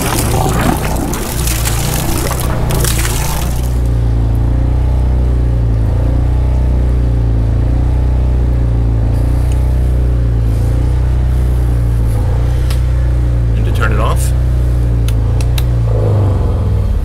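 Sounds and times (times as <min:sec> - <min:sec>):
generator humming: 0:00.0 - 0:06.2.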